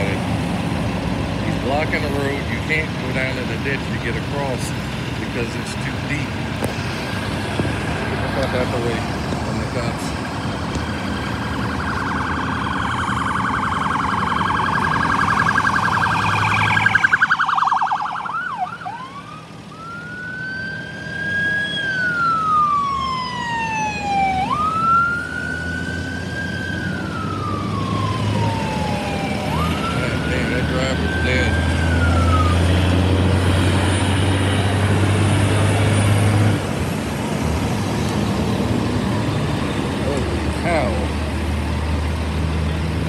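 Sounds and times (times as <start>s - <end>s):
low engine hum: 0.0s - 43.0s
police siren yelp and wail: 9.4s - 34.7s.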